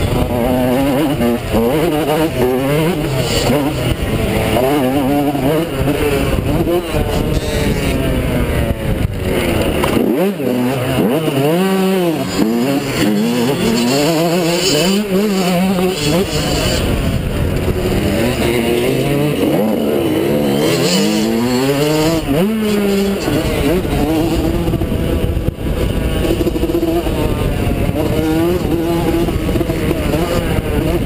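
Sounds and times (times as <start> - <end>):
motocross engine revving: 0.0 - 31.0.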